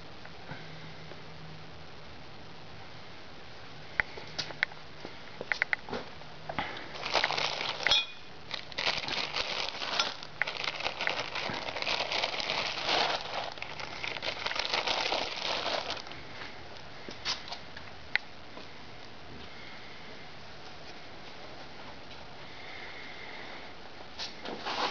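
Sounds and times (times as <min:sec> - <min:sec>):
plastic bag crinkling: 0:06.9 - 0:16.4.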